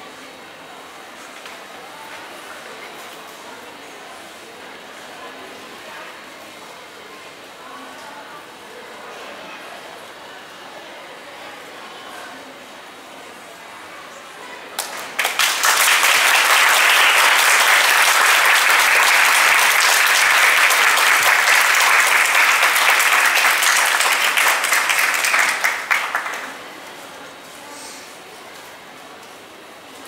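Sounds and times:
audience applauding: 14.8 - 26.6.

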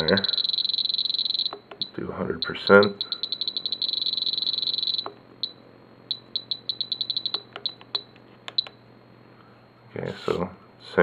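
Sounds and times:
high electronic beeps: 0.0 - 8.7.

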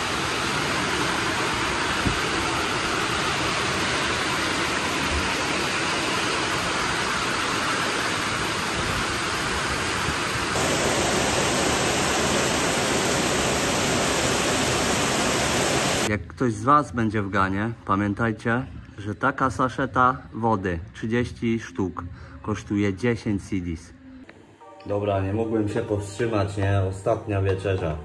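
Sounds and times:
heavy rain pouring: 0.0 - 16.1
water running off roof: 0.0 - 16.1.

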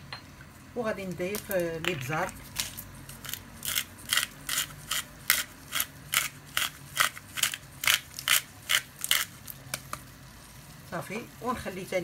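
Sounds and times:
pepper mill grinding: 1.2 - 10.6.

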